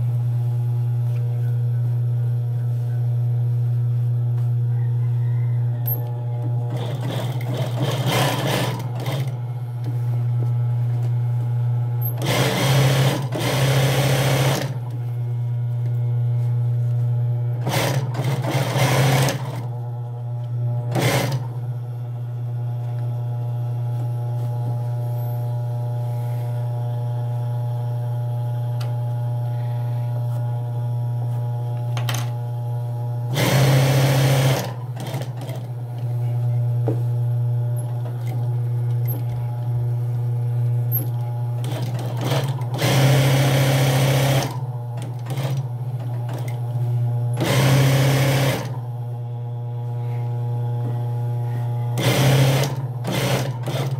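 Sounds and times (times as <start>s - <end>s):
sewing machine stitching: 6.0s - 9.4s, 12.1s - 14.9s, 17.6s - 19.7s, 20.9s - 21.6s, 33.3s - 35.7s, 41.0s - 46.6s, 47.4s - 48.8s, 52.0s - 53.9s.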